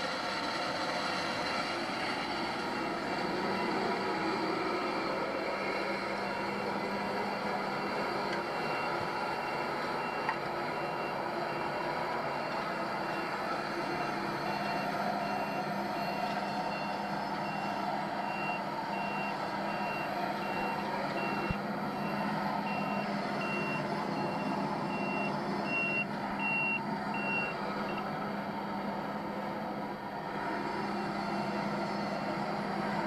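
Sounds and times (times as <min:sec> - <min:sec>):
reversing alarm beeping: 0:02.7 - 0:28.0.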